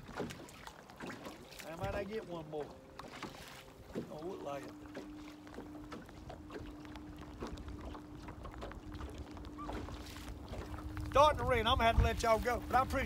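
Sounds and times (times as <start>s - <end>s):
wind on microphone: 6.5s - 13.0s.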